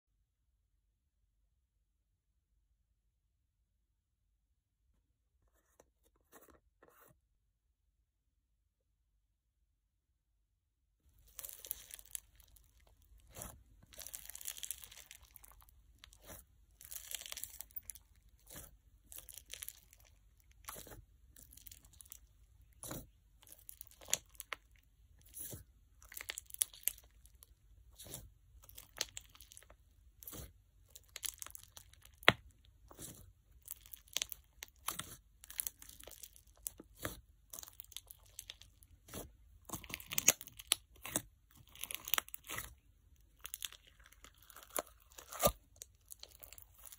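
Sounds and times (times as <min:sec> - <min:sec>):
crunchy slime crackling and popping: 0:11.1 - 0:46.9.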